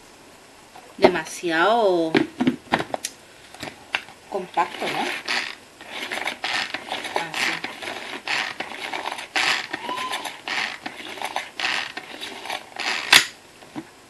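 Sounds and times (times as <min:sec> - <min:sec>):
pull-cord mixer whirring: 0:04.6 - 0:13.4.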